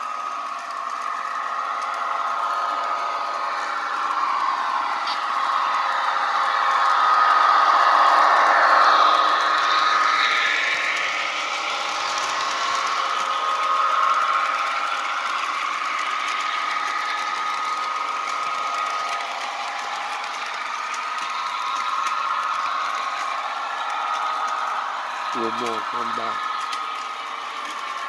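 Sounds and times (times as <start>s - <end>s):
model train motor whine: 0.0s - 28.0s
wheels rattling on rails: 0.0s - 28.0s.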